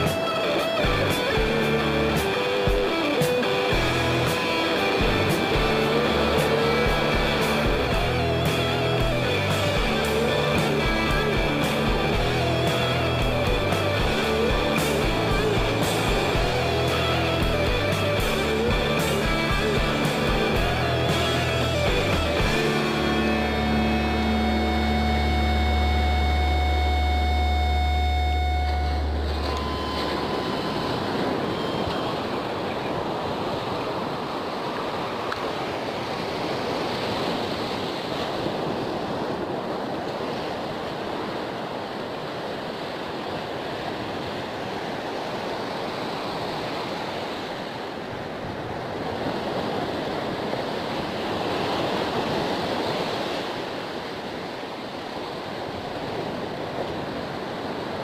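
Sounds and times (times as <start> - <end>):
music track: 0.0 - 32.2
surf breaking on beach: 0.0 - 58.0.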